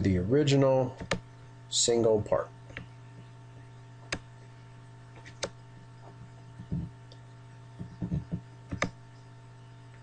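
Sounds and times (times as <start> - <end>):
low electrical hum: 0.0 - 10.0
computer mouse click: 5.3 - 5.6, 8.0 - 9.0
soft low thumps: 6.2 - 7.0, 7.7 - 8.9.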